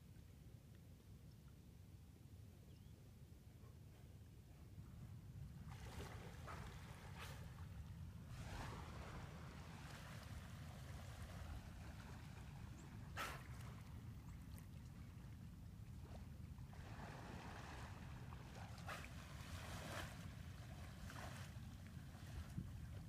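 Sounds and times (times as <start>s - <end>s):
dolphins blowing: 8.4s - 14.0s.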